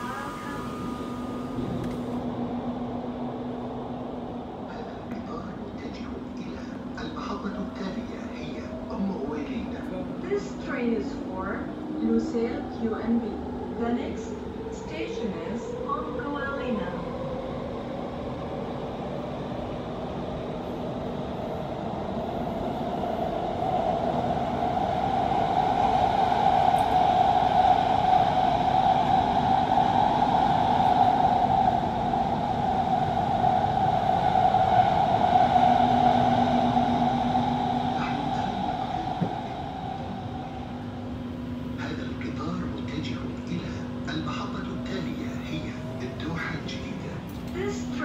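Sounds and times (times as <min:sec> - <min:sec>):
train rolling rumble: 0:00.0 - 0:48.0.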